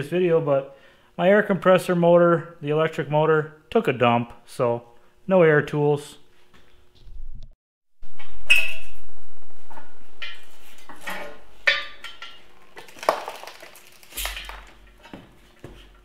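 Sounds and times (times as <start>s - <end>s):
metal clanks and clinks: 10.2s - 12.7s.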